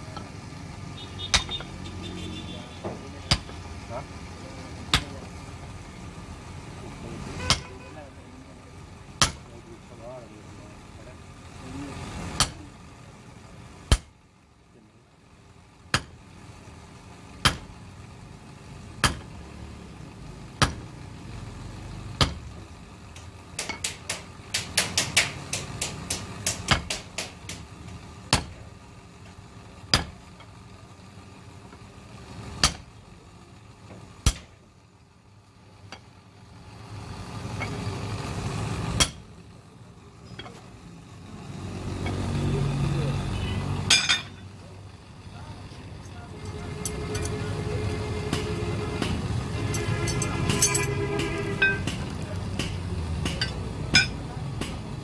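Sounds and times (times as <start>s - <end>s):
hammer striking steel: 1.2s - 3.6s, 4.9s - 5.2s, 7.4s - 7.8s, 9.2s - 9.5s, 12.4s - 12.6s, 15.9s - 16.2s, 17.4s - 17.8s, 19.0s - 19.4s, 20.6s - 20.9s, 22.2s - 22.6s, 23.2s - 28.6s, 29.9s - 30.3s, 32.6s - 32.9s, 34.2s - 34.6s, 39.0s - 39.3s, 43.8s - 44.4s, 46.4s - 54.8s.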